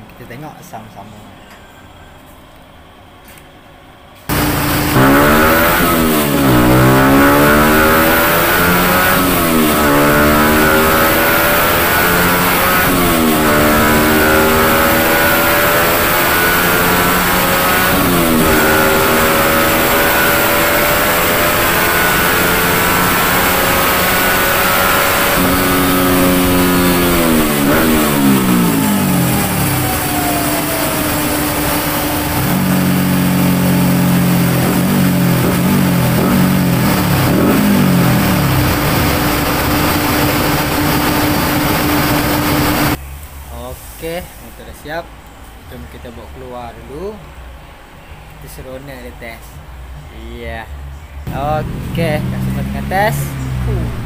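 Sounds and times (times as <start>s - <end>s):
motorcycle engine revving: 4.3s - 43.0s, 51.2s - 54.0s.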